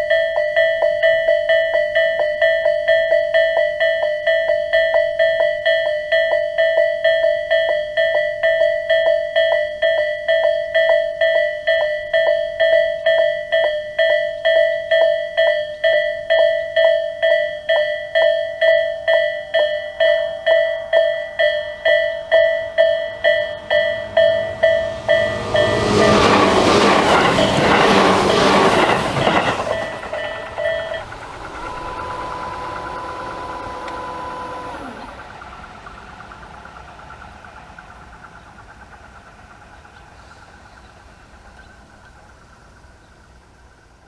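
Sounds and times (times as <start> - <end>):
electronic level crossing bell: 0.0 - 26.0, 29.7 - 35.2
train approaching: 0.0 - 44.0.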